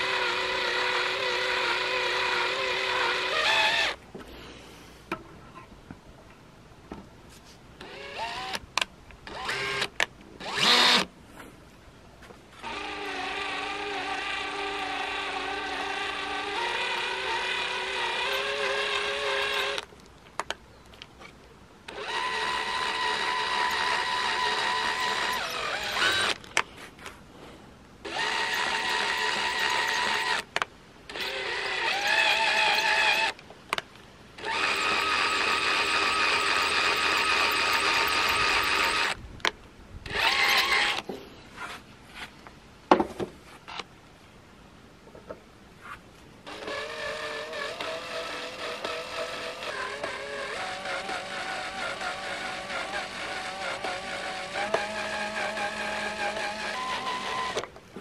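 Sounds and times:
cordless drill whining: 0:00.0 - 0:04.0, 0:07.8 - 0:08.6, 0:09.2 - 0:11.1, 0:12.5 - 0:19.9, 0:21.9 - 0:26.5, 0:28.0 - 0:30.5, 0:31.1 - 0:33.4, 0:34.4 - 0:39.2, 0:40.1 - 0:41.1, 0:46.5 - 0:57.7.

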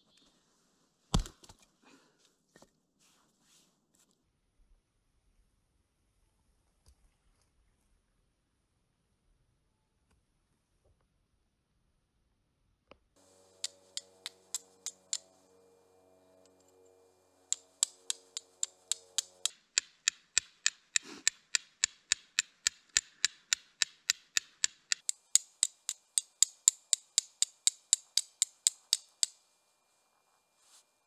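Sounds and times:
striker clicking against stone: 0:13.6 - 0:15.3, 0:17.5 - 0:29.4.

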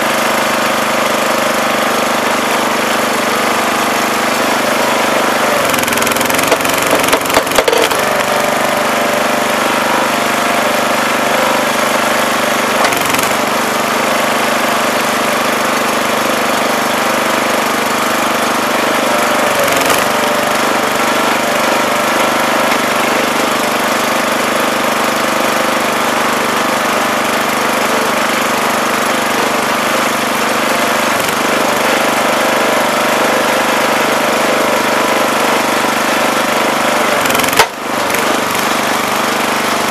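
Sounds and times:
small gas engine running: 0:00.0 - 0:39.9
wood splitting cracks: 0:05.5 - 0:08.4, 0:37.2 - 0:38.7.

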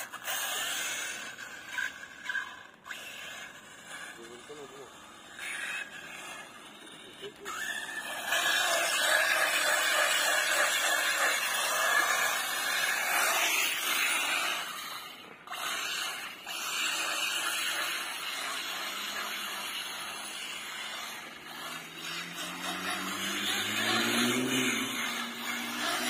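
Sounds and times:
rc truck motor and tyres whining: 0:00.0 - 0:26.0
lower whine rising in pitch: 0:19.2 - 0:26.0.

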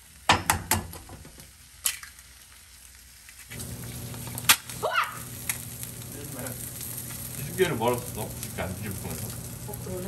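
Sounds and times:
egg sizzling in oil: 0:00.0 - 0:10.0
egg cracking click: 0:01.8 - 0:02.2, 0:04.1 - 0:04.8, 0:05.4 - 0:05.8.

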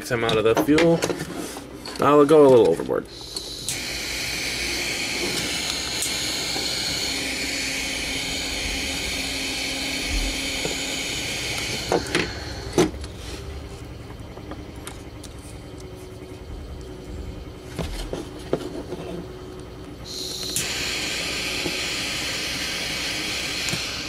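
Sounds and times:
heat gun blowing hot air: 0:03.1 - 0:12.9, 0:20.0 - 0:24.0.

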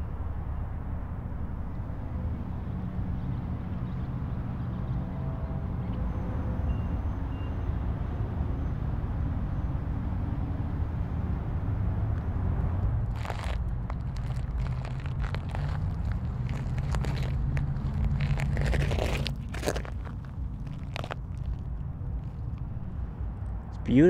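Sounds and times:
distant highway traffic: 0:00.0 - 0:24.0.

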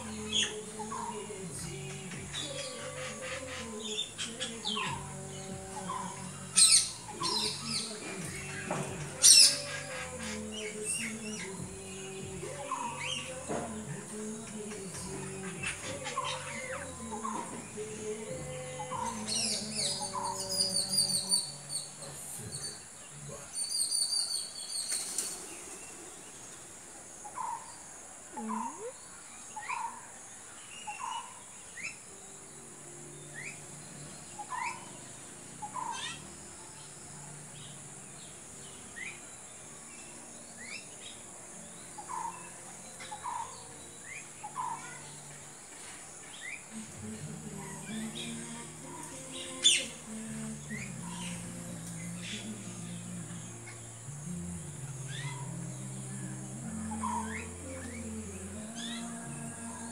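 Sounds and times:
parakeets screeching: 0:09.2 - 0:11.5.

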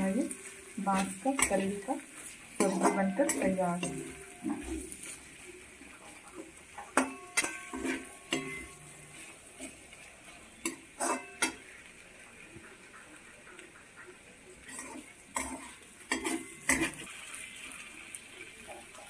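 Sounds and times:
metal spatula scraping a pan: 0:00.0 - 0:05.5, 0:06.7 - 0:11.8, 0:13.9 - 0:17.1
faint frying sizzle: 0:00.0 - 0:19.0.

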